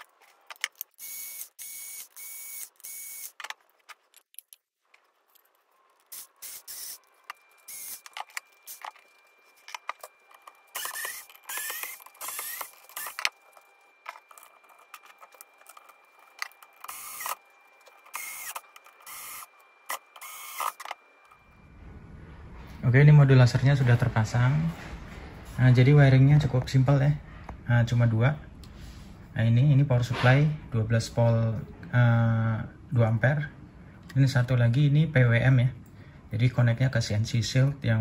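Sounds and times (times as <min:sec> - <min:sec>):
screws and parts rattling: 0:00.0 - 0:21.0
cordless screwdriver whirring: 0:00.7 - 0:03.5, 0:06.1 - 0:07.0, 0:07.7 - 0:09.0, 0:10.4 - 0:13.4, 0:16.4 - 0:17.4, 0:18.1 - 0:21.0.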